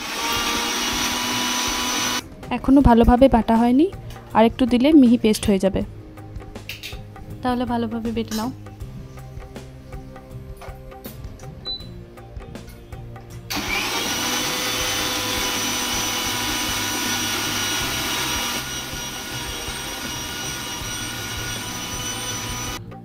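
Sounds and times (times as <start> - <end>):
electric mixer grinder running: 0.0 - 2.2, 13.5 - 22.8.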